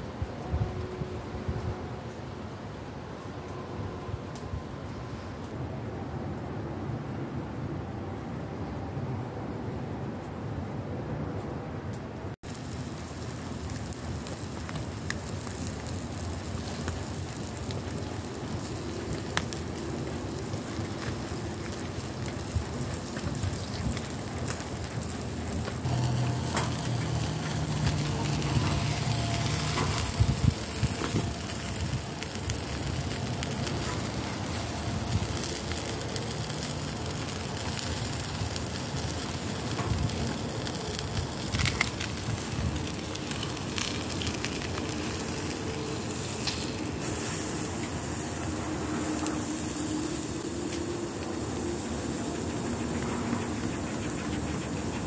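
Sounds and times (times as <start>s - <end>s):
cooking fire crackling: 12.3s - 55.0s.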